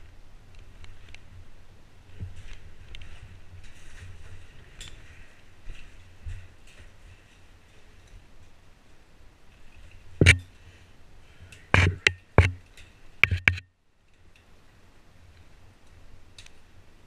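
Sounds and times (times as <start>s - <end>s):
caving gear knocks and clicks: 11.8s - 12.6s, 13.2s - 13.6s.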